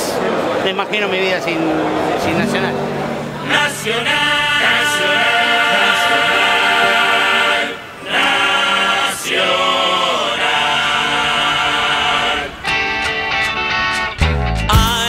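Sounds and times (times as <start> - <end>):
choir singing long notes: 1.8 - 13.0.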